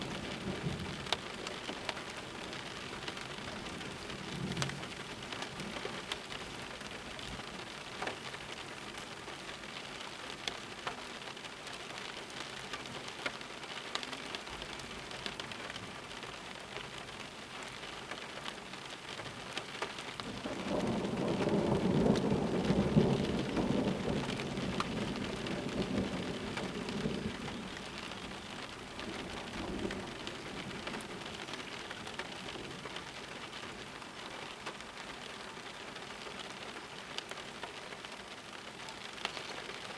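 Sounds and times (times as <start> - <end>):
raindrops ticking: 0.0 - 39.9
steady rain falling: 0.0 - 39.9
thunder rumbling: 20.3 - 31.4.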